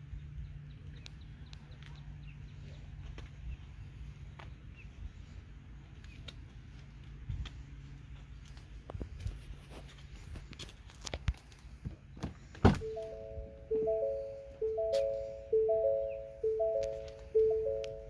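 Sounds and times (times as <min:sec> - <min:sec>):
simple tune of clear notes: 0:12.8 - 0:18.0
scattered clicks: 0:16.6 - 0:18.0.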